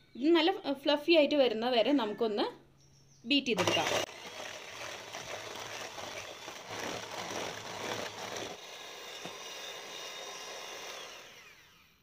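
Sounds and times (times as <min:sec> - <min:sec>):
electric hand mixer whine: 0:03.6 - 0:12.0.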